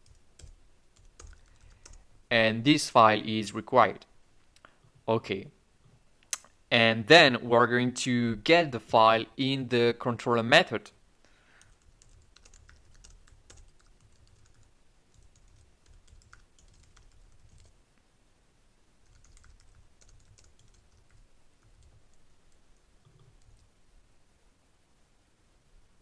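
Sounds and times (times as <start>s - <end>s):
faint typing on keyboard: 0.0s - 2.1s, 11.5s - 17.8s, 19.0s - 23.8s.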